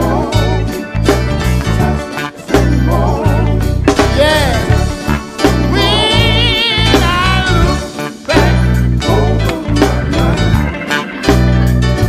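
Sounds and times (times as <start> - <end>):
drums: 0.0 - 12.0
electric bass: 0.0 - 12.0
man singing: 2.5 - 11.0.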